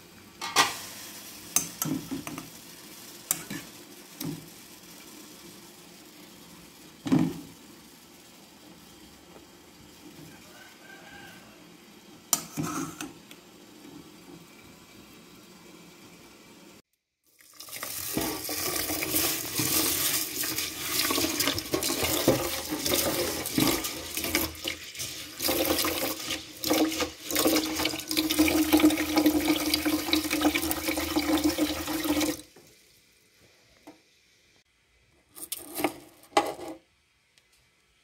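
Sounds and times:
meat sizzling in frying pan: 0:00.6 - 0:08.1, 0:17.6 - 0:32.2
water pouring into metal pot: 0:17.2 - 0:32.5.

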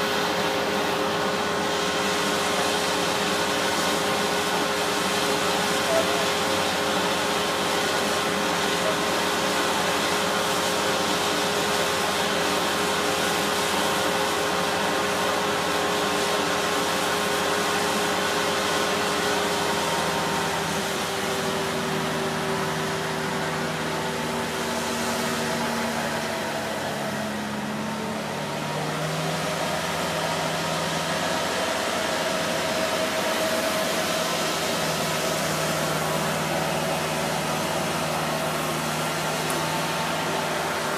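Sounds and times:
diesel engine droning: 0:00.0 - 0:40.9.

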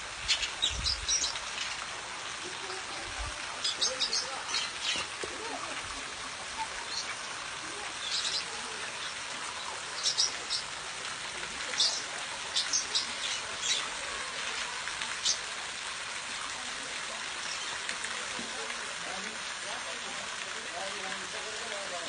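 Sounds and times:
small waterfall splashing into pool: 0:00.0 - 0:22.0.

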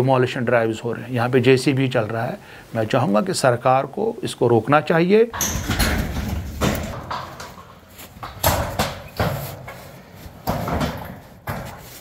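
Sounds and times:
metal sheets banging and rattling: 0:05.4 - 0:12.0.

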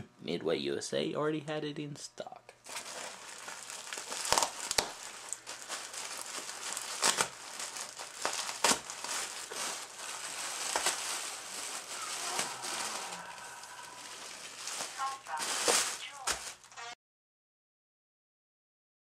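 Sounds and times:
bubble wrap crackles: 0:02.6 - 0:17.0
bubble wrap crinkling: 0:02.6 - 0:17.0.

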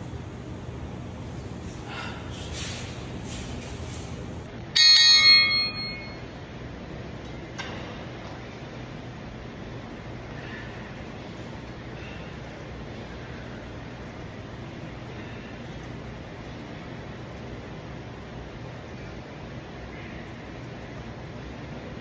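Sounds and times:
room noise: 0:00.0 - 0:22.0
metallic bell-like ding: 0:04.8 - 0:06.2.

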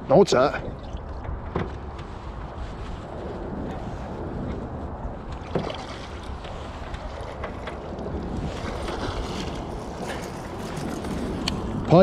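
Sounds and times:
steady low rumble: 0:00.0 - 0:12.0
wind buffeting microphone: 0:00.0 - 0:12.0
fish thrashing and splashing: 0:05.4 - 0:06.5.

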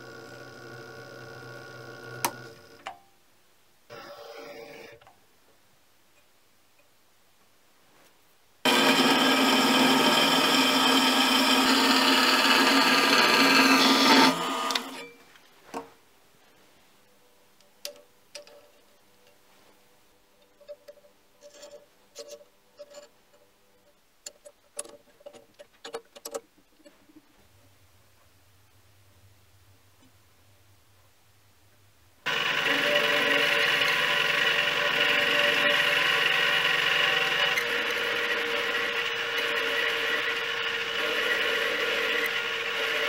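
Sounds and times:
lathe running: 0:08.7 - 0:15.0, 0:32.3 - 0:43.0.

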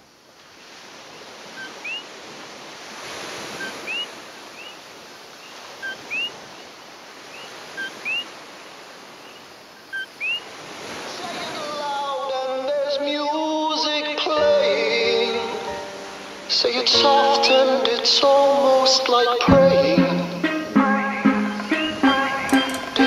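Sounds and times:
ocean surf washing: 0:00.0 - 0:23.0
frogs calling: 0:01.1 - 0:02.1, 0:03.5 - 0:11.2.

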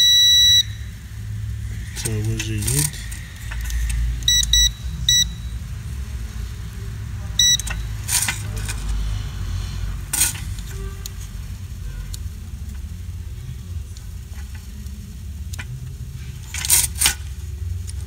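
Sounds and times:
multimeter beeps: 0:00.0 - 0:00.9, 0:04.2 - 0:05.6, 0:07.4 - 0:08.0
steady low hum: 0:00.0 - 0:18.0.

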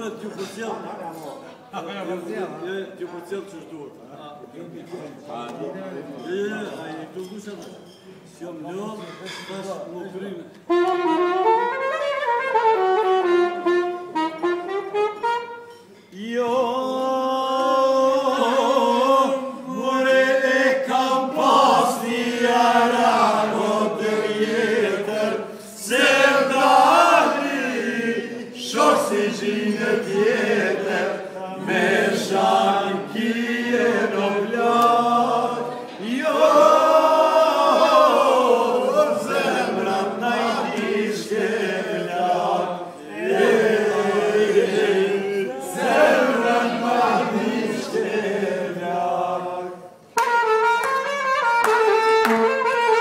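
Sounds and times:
saxophone melody: 0:10.7 - 0:16.0, 0:50.1 - 0:53.0
men singing together: 0:16.1 - 0:50.0.

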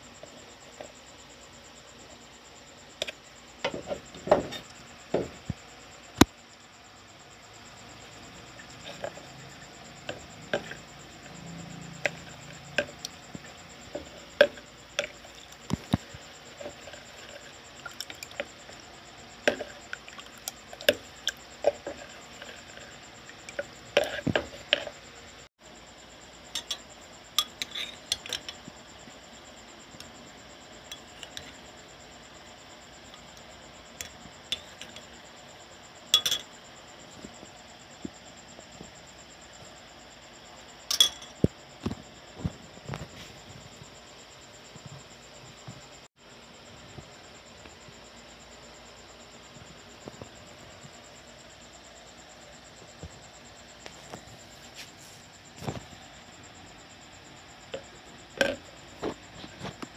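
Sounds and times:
spoon clinking in container: 0:36.2 - 0:36.5.

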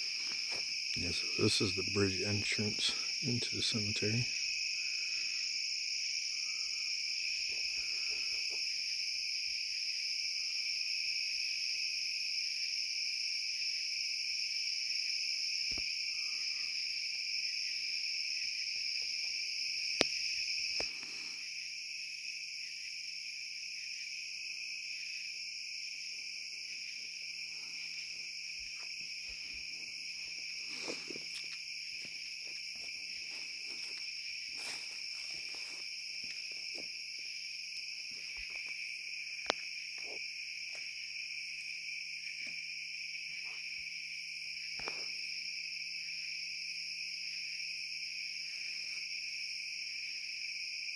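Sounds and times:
faint footsteps in weeds: 0:00.0 - 0:00.8, 0:28.5 - 0:37.0
crickets and insects droning: 0:00.0 - 0:50.9.

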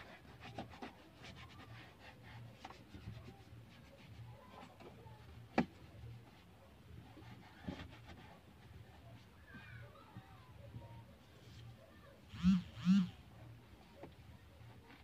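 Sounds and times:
sponge wiping dashboard: 0:00.0 - 0:09.4.

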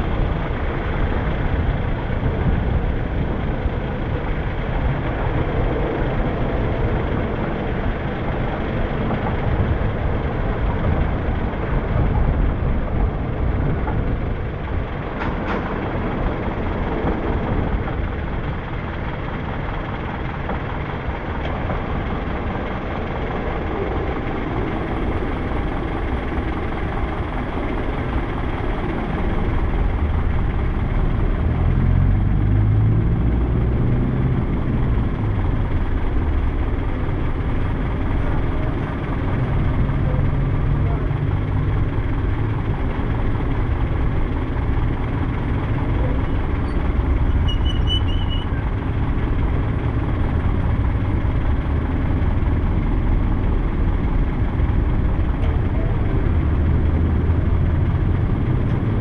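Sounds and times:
surrounding traffic: 0:00.0 - 0:59.0
vehicle road and engine rumble: 0:00.0 - 0:59.0.

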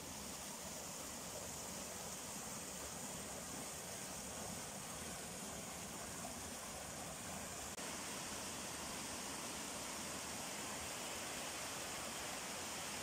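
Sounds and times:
rainforest background hiss: 0:00.0 - 0:13.0.

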